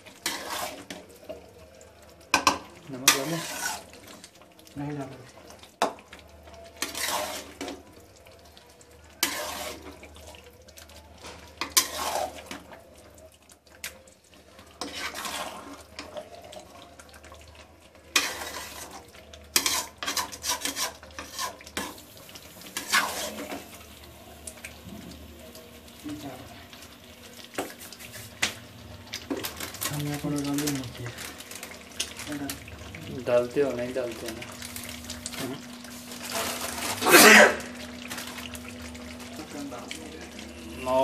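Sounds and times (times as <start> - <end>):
spatula scraping in a pan: 0.0 - 1.5, 2.4 - 4.3, 6.6 - 7.8, 9.1 - 10.5, 11.1 - 12.7, 14.6 - 16.6, 18.1 - 23.8, 27.4 - 28.6, 35.4 - 37.5.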